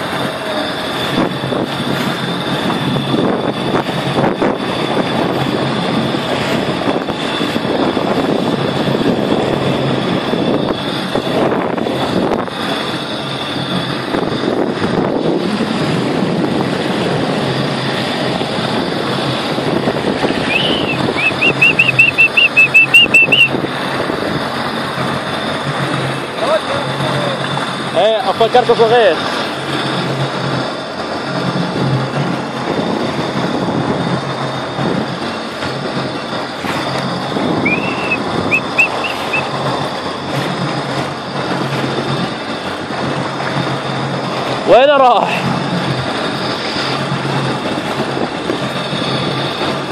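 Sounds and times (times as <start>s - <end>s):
jet ski engine: 0.0s - 49.9s
water rushing along hull: 0.0s - 49.9s
high chirps: 20.4s - 23.5s, 37.6s - 39.5s.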